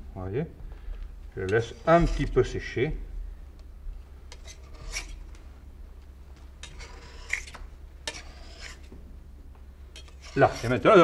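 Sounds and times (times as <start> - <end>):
low steady hum: 0.0 - 11.0
metal spatula scraping marble: 1.4 - 2.6, 4.3 - 5.2, 6.6 - 8.9, 9.9 - 11.0.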